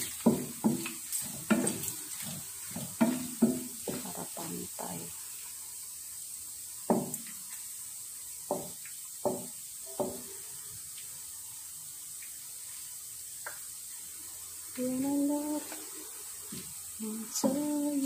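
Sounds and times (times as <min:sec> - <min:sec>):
wooden spatula knocking on pan: 0:00.0 - 0:01.8, 0:02.7 - 0:04.2, 0:06.9 - 0:07.4, 0:08.4 - 0:10.3
meat sizzling in oil: 0:00.0 - 0:18.0.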